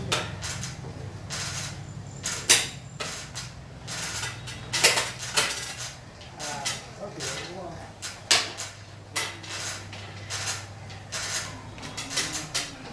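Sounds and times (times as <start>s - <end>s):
steady low hum: 0.0s - 12.9s.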